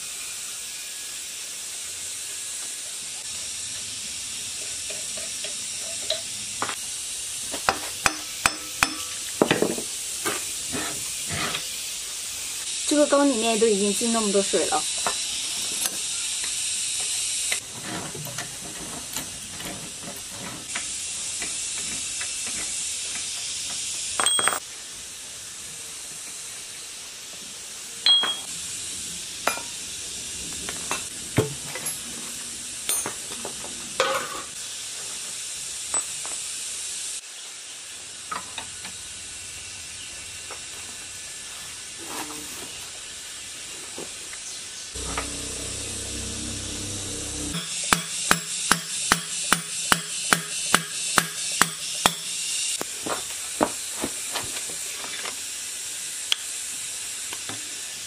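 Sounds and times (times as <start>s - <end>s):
steady high hiss: 0.0s - 17.6s, 20.7s - 42.0s, 42.6s - 58.0s
wrench clinking on metal: 24.2s - 24.6s, 28.1s - 28.5s.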